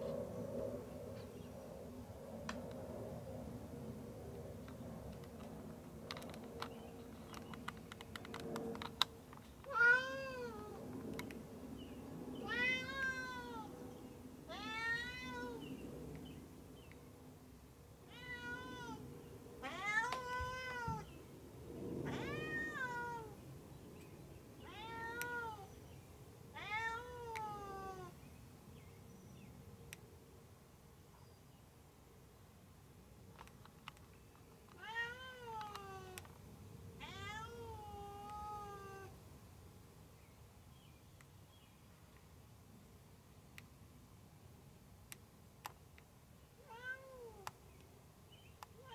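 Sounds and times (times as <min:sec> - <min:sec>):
light clicks: 0:04.6 - 0:09.7
cat meowing: 0:09.7 - 0:10.8, 0:12.4 - 0:13.7, 0:14.5 - 0:15.6, 0:18.1 - 0:19.0, 0:19.6 - 0:21.1, 0:22.1 - 0:23.4, 0:24.6 - 0:25.7, 0:26.6 - 0:28.1, 0:34.8 - 0:36.2, 0:37.0 - 0:39.1, 0:46.6 - 0:47.4.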